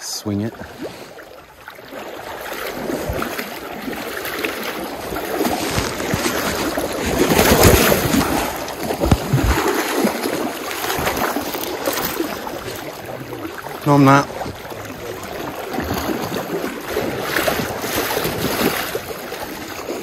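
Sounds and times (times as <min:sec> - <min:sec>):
river water rushing: 0:00.0 - 0:20.0
microphone bumps and rubbing: 0:05.4 - 0:09.8.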